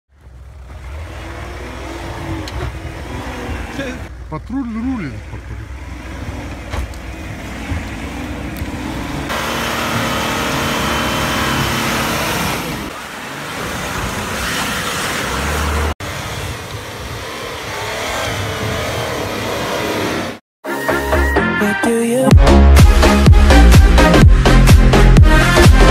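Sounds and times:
engine revving under load: 0.1s - 4.2s, 5.2s - 20.4s
tyres churning snow and mud: 0.1s - 20.4s.

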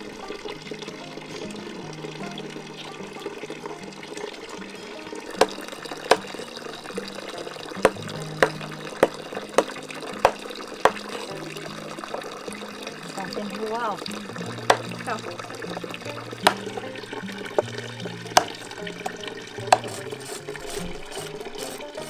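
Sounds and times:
running water: 0.0s - 22.0s
sharp knocks: 7.8s - 11.1s, 14.6s - 14.9s.

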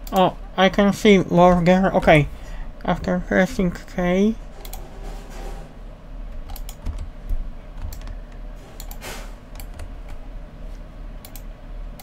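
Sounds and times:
low electrical hum: 0.0s - 12.0s
mouse and keyboard clicks: 8.8s - 9.0s.

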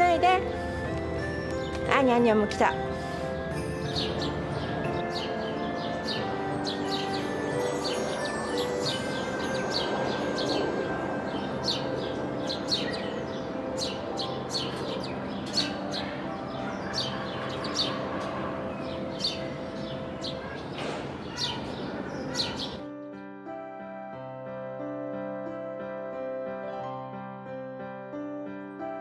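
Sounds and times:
small birds chirping: 3.8s - 22.9s.

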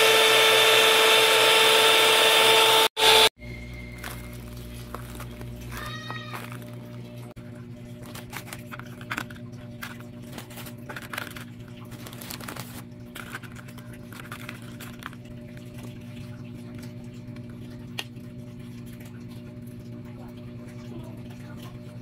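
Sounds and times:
crackers tapping in plastic tub: 7.9s - 15.3s.

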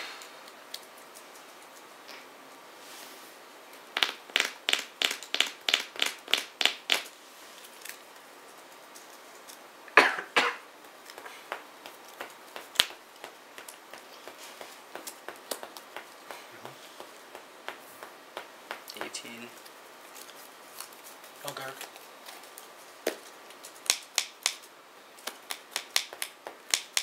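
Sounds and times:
sharp card snaps: 4.0s - 7.1s.

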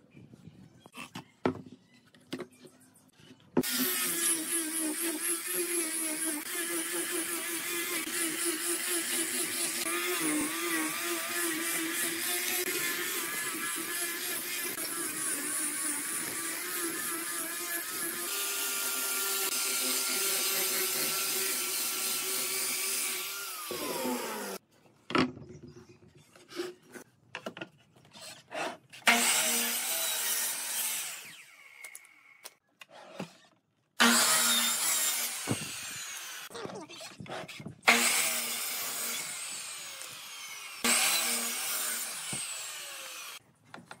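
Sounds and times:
angle grinder sanding wood: 3.6s - 24.6s, 34.0s - 36.5s, 37.9s - 43.4s
motor saw running: 3.6s - 24.6s.

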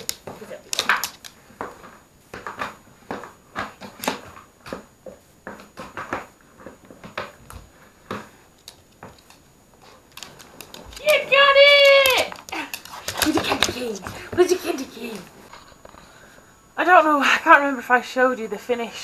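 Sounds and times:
dog sniffing: 12.5s - 15.7s.

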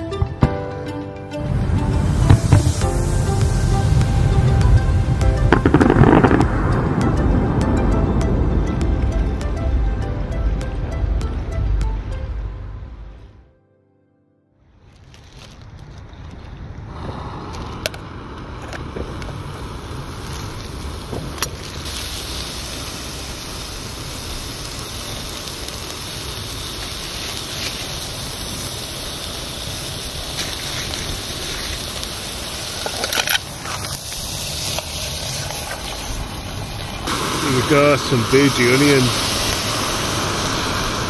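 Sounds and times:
gas stove burning: 16.7s - 41.0s.

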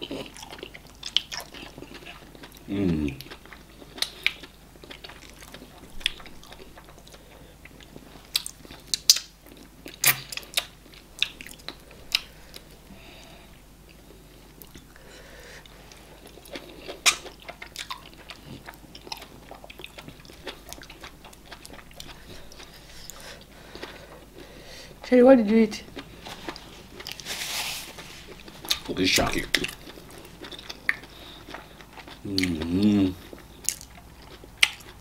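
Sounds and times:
people chewing with lip smacks: 0.0s - 25.0s, 25.9s - 27.3s, 27.9s - 35.0s.

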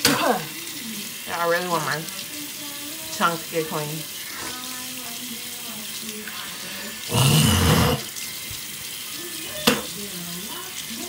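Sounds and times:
water running from a tap: 0.0s - 11.0s.

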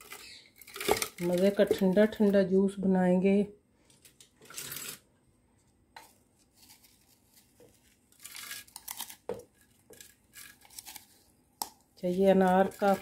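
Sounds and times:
frozen seeds rustling: 0.0s - 2.5s, 6.2s - 11.4s, 12.0s - 13.0s.

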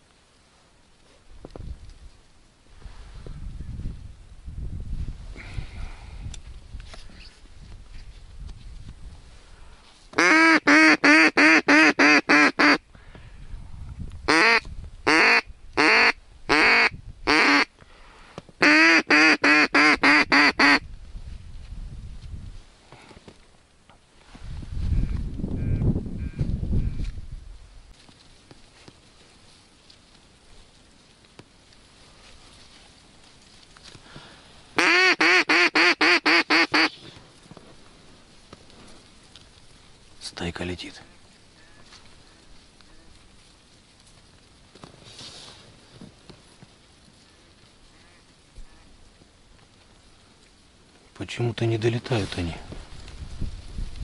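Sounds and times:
duck call quacks: 10.2s - 12.8s, 14.3s - 17.7s, 18.6s - 20.8s, 34.8s - 37.0s.

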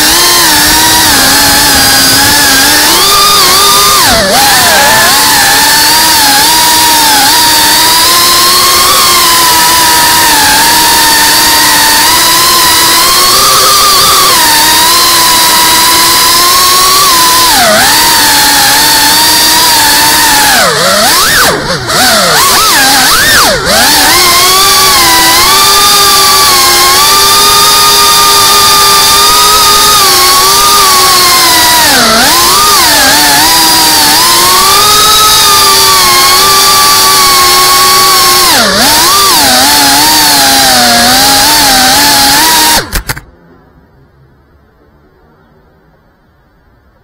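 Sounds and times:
drone motors whining: 0.0s - 43.3s.

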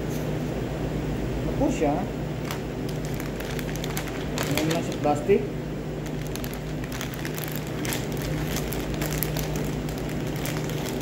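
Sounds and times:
low machine hum: 0.0s - 11.0s
plastic bag crinkling: 2.4s - 5.3s, 6.0s - 11.0s.

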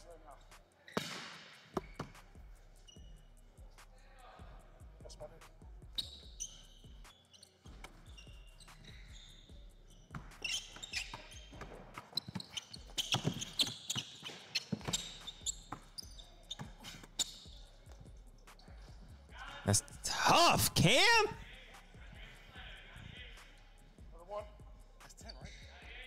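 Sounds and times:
sneakers squeaking: 0.0s - 19.9s, 21.0s - 26.0s
basketball bouncing on hardwood: 10.1s - 15.8s.

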